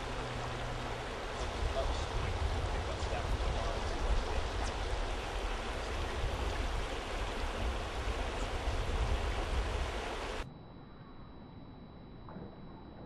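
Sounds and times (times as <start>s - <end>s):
river running over rocks: 0.0s - 10.4s
low rumble: 0.0s - 11.2s.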